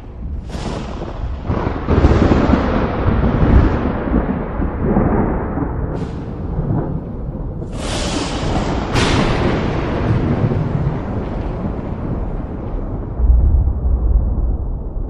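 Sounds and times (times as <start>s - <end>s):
sharp thunder cracks: 0.0s - 15.0s
thunder rumbling: 0.0s - 15.0s.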